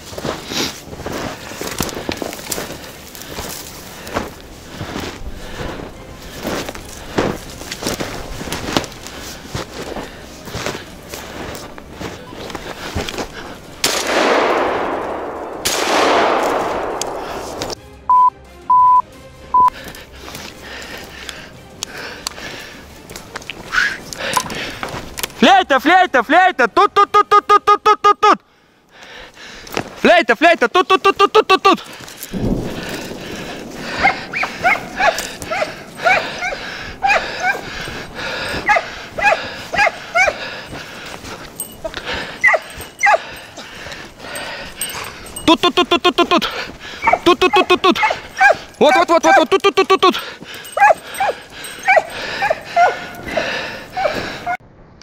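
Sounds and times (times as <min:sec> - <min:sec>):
shotgun shots echoing: 0:13.8 - 0:17.8
short loud high beeps: 0:18.1 - 0:19.0
hounds yelping: 0:33.8 - 0:45.7, 0:46.8 - 0:54.6.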